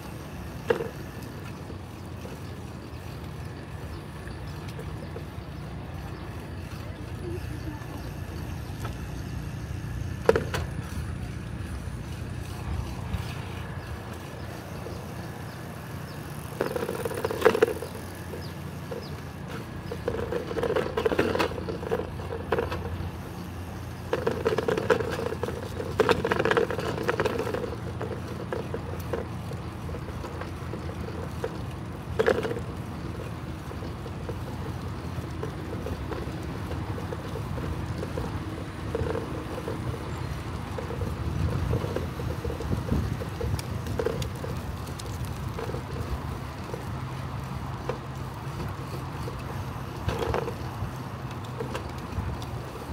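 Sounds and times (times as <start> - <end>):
bicycle rattling: 0.0 - 52.9
bicycle tyres rumbling: 0.0 - 52.9
wind on microphone: 36.9 - 46.8.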